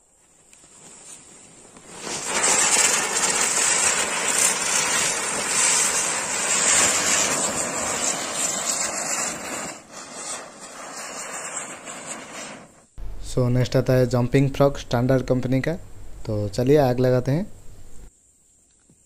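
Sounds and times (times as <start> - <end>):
fireworks hissing sparks: 0.0 - 13.2.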